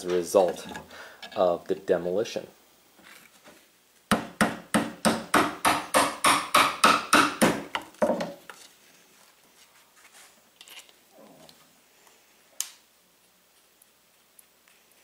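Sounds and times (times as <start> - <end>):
faint handling sounds: 0.0 - 1.6, 8.4 - 12.3
rubber mallet striking wooden board: 4.1 - 8.3.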